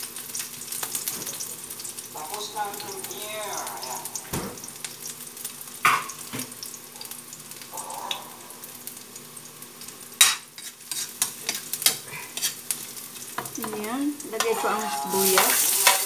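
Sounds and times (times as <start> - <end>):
garlic sizzling in hot oil: 0.0 - 16.0
spatula knocking and scraping wok: 10.2 - 16.0.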